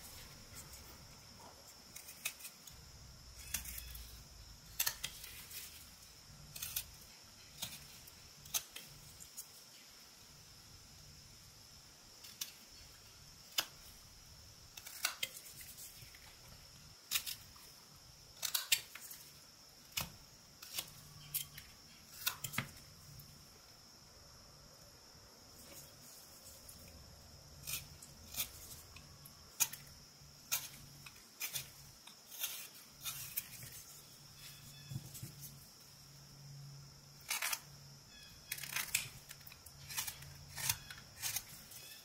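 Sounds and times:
knife slicing wood: 3.4s - 4.1s, 27.6s - 35.6s, 38.4s - 42.0s.

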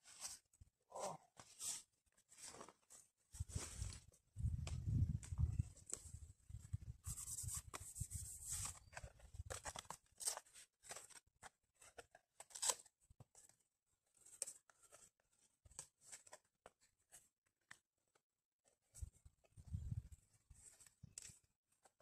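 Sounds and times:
camping gear rustling and clicking: 1.4s - 6.8s, 18.9s - 22.0s.

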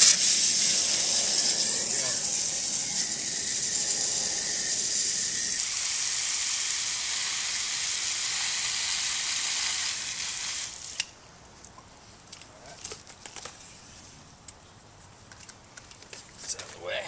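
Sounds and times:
hose nozzle spraying water: 0.0s - 11.1s.

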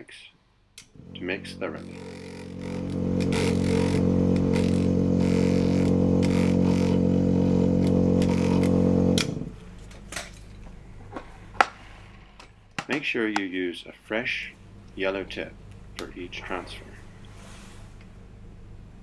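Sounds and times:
vortex mixer humming: 0.8s - 9.6s.

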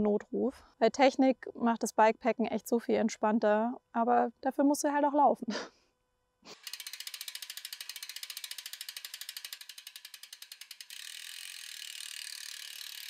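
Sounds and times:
mechanical ratcheting clicks: 6.6s - 13.0s.

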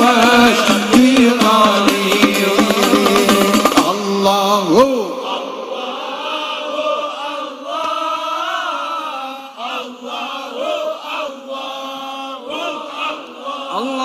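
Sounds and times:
male lead voice chanting: 0.0s - 6.1s, 11.7s - 14.0s
group singing devotional chant: 0.0s - 14.0s.

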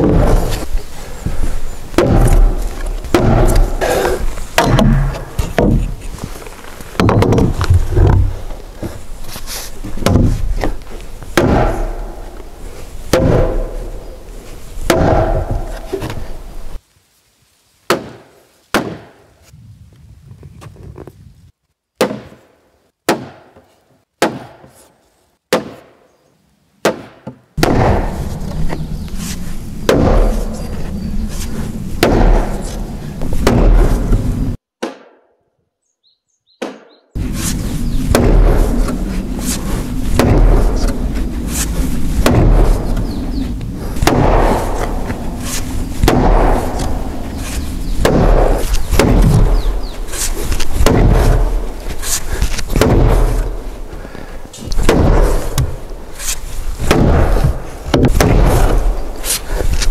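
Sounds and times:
knocks on timber beams: 2.0s - 4.0s, 4.6s - 6.0s, 7.0s - 8.3s, 10.0s - 10.5s, 56.8s - 58.9s.

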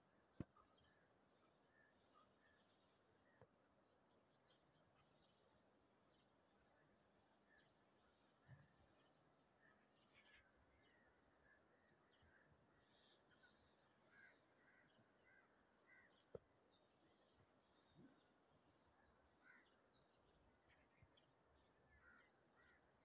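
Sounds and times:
faint bird chirps: 6.2s - 23.0s.

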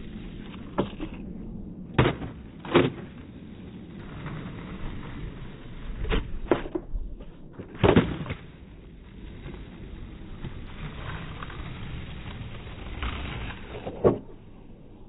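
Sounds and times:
skateboard wheels rolling on asphalt: 0.0s - 15.0s
skateboard landing clack: 0.3s - 3.4s, 5.8s - 8.8s, 12.2s - 14.5s.

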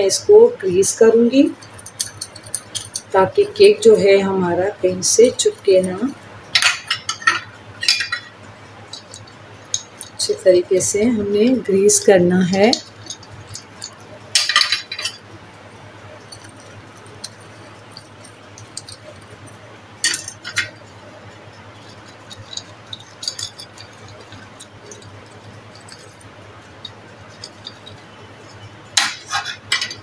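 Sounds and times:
metal moulds clinking on tray: 26.8s - 30.0s.

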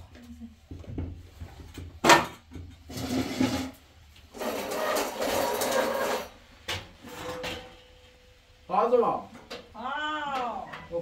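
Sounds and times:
rough scraping noise: 2.9s - 6.4s
metal pots clanking: 4.4s - 8.1s.

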